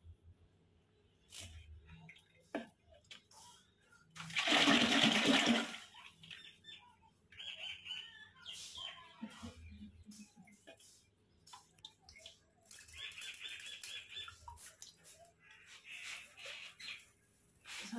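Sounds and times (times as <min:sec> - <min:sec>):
buttermilk sloshing in clay pot: 0:04.2 - 0:05.9.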